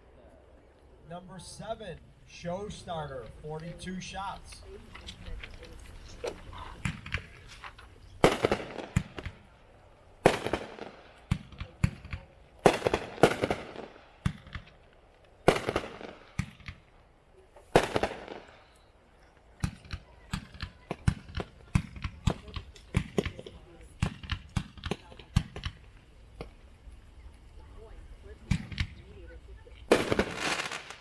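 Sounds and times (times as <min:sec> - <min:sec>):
crackling firework tail: 0:00.0 - 0:31.0
small firework pops: 0:04.3 - 0:09.5, 0:10.2 - 0:16.9, 0:17.5 - 0:27.6, 0:28.4 - 0:31.0
firework shell bursts: 0:29.9 - 0:31.0.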